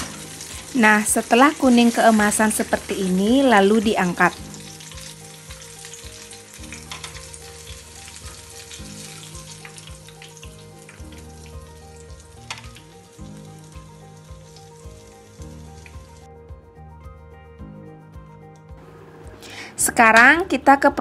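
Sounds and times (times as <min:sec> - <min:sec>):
oil sizzling in a frying pan: 0:00.0 - 0:16.3
background music with bass line: 0:03.2 - 0:20.4.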